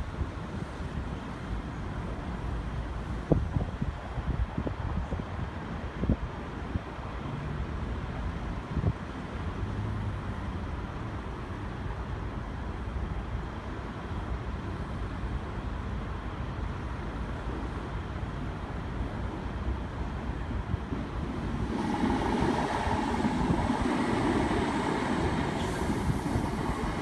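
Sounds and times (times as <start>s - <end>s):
wind buffeting microphone: 20.1s - 27.0s.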